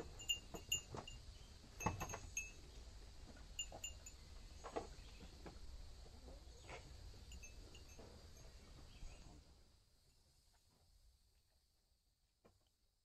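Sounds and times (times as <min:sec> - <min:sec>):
wind chime tinkling: 0:00.1 - 0:01.2, 0:01.8 - 0:02.6, 0:03.6 - 0:04.2, 0:07.2 - 0:08.1.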